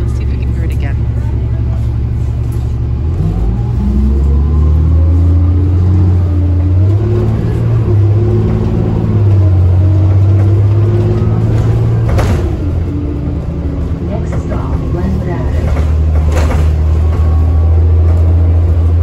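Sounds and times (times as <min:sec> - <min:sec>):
bus engine accelerating: 0:00.0 - 0:19.0.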